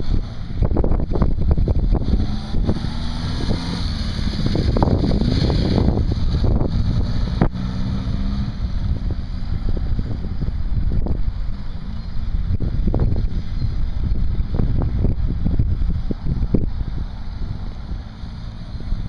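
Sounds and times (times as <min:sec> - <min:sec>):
wind buffeting microphone: 0:00.0 - 0:19.0
motorcycle riding past: 0:01.9 - 0:09.8.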